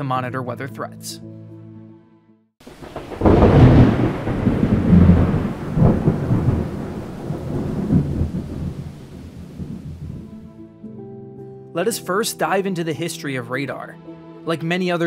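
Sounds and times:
thunder clap and rumble: 2.6s - 10.5s.

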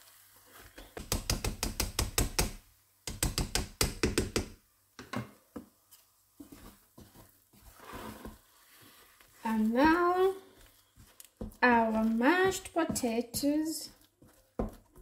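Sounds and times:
wooden spoon working mash: 0.0s - 2.5s, 5.5s - 15.0s.

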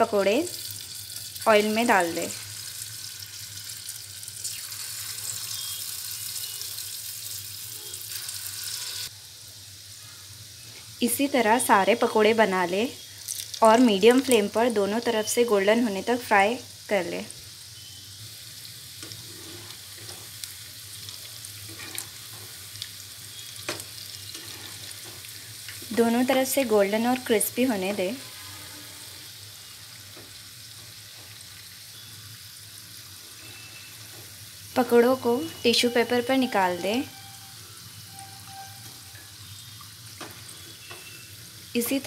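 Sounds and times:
batter deep-frying in oil: 0.0s - 42.0s.

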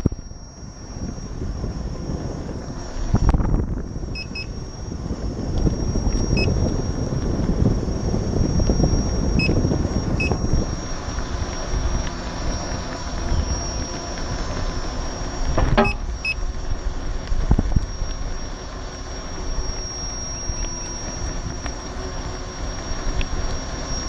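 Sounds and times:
electric unicycle rolling rumble: 0.0s - 24.0s
wind on microphone: 0.0s - 24.0s
short high blips: 3.1s - 4.7s, 8.5s - 16.4s.

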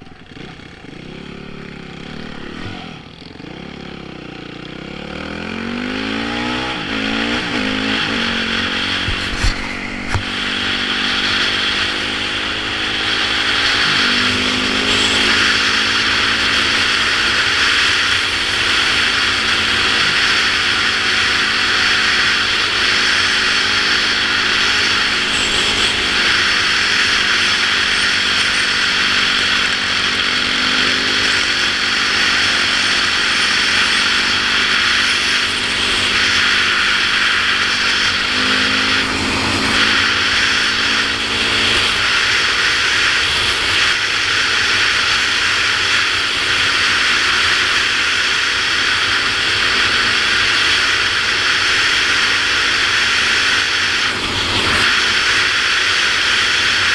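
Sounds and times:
dirt bike engine running: 0.0s - 56.9s
wind rush on helmet: 7.9s - 10.9s.

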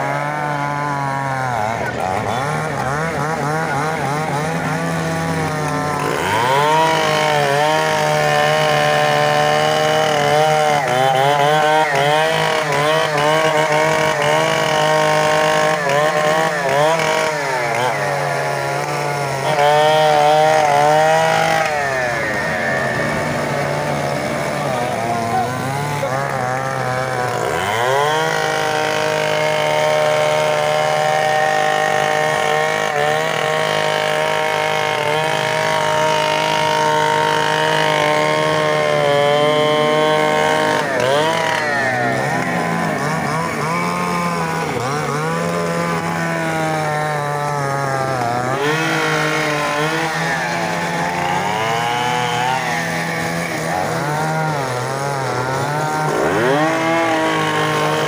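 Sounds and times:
chainsaw cutting wood: 0.0s - 58.0s.

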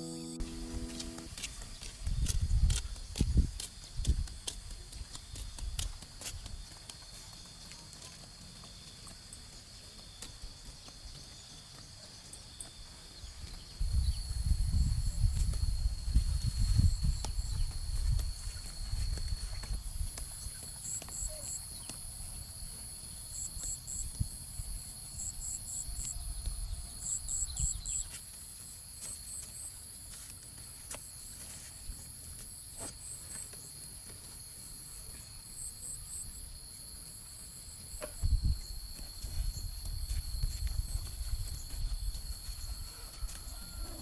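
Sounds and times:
insect high trill: 0.0s - 1.4s
cricket chirping: 0.0s - 44.0s.

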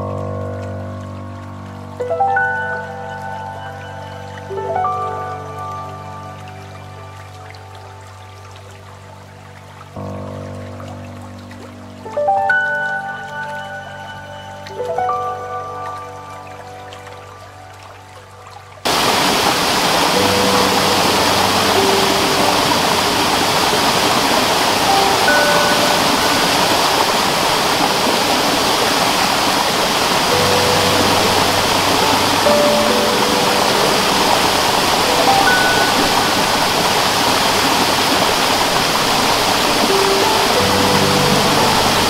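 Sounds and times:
faint background music: 0.0s - 18.8s
soft background music: 0.0s - 42.0s
water rushing over rocks: 0.0s - 42.0s.

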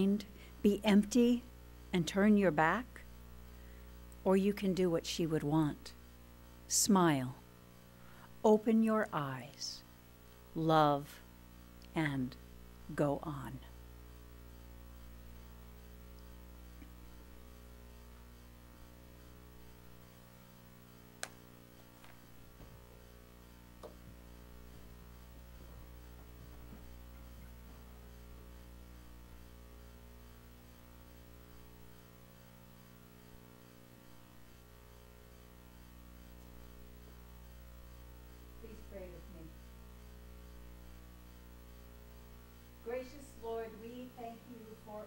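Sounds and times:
low electrical hum: 0.0s - 45.0s.

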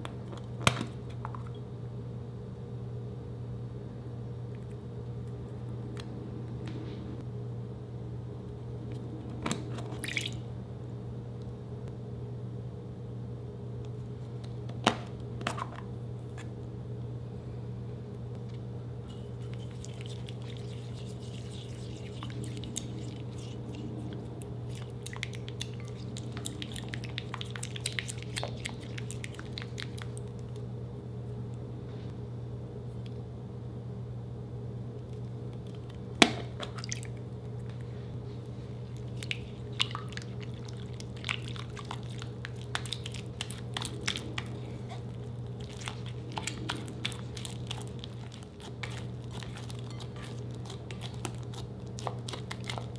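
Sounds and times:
steady low hum: 0.0s - 52.9s
spatula stirring wet glitter: 19.1s - 24.0s, 39.1s - 52.9s.

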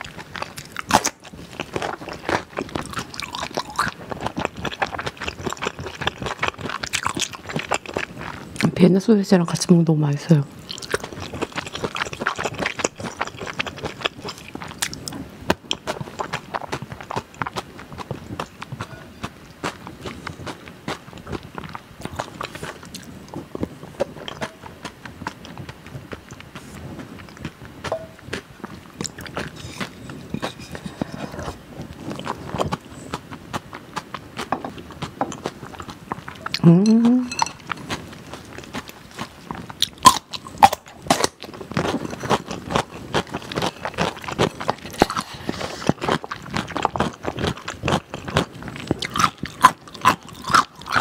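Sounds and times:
wet chewing mouth clicks: 0.0s - 8.7s, 10.6s - 51.0s
spoon scraping glass bowl: 29.4s - 31.6s, 37.2s - 37.8s, 42.0s - 42.4s.

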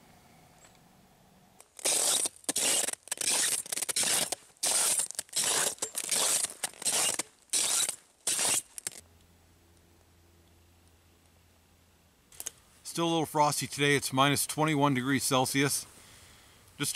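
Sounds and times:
footsteps crunching through snow: 1.6s - 9.0s.

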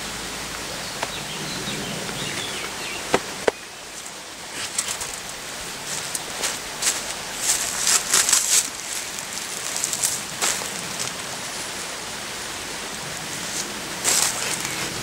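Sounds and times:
grass rustling: 0.0s - 15.0s.

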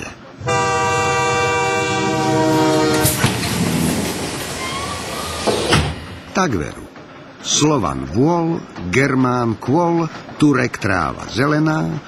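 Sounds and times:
multi-tone horn blast: 0.4s - 3.5s.

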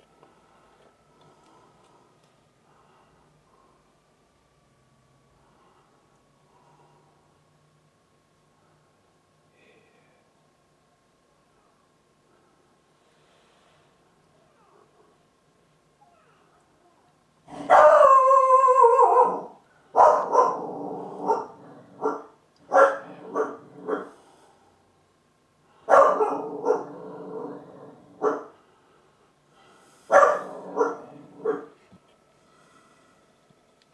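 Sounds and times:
dog barking loudly: 17.6s - 24.1s, 25.9s - 26.9s, 28.2s - 28.5s, 30.1s - 31.7s.

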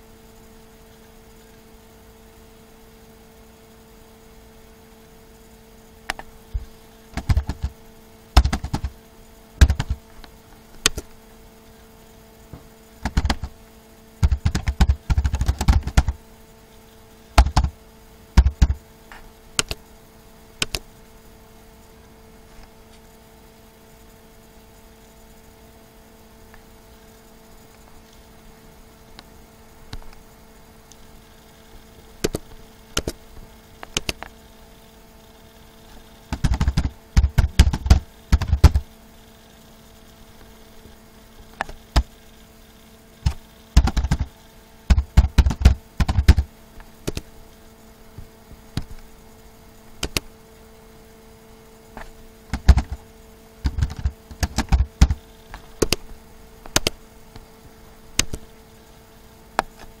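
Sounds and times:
faint steady hum: 0.0s - 60.0s
keyboard typing: 7.2s - 7.8s, 8.4s - 9.0s, 9.6s - 10.0s, 13.0s - 13.6s, 14.2s - 16.2s, 17.4s - 17.8s, 18.4s - 18.8s, 19.6s - 19.8s, 20.6s - 20.8s, 33.0s - 33.2s, 33.8s - 34.3s, 36.3s - 38.8s, 43.2s - 47.3s, 50.0s - 50.2s, 52.5s - 53.0s, 53.6s - 55.2s, 56.7s - 57.0s, 58.2s - 58.4s.

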